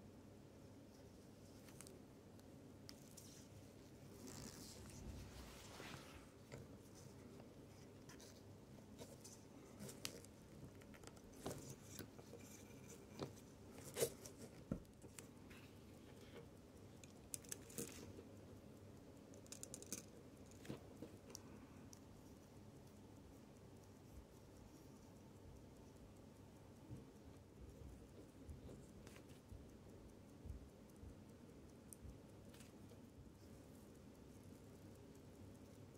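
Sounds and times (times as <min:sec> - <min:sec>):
small metal clicks and taps: 0:06.5 - 0:22.2.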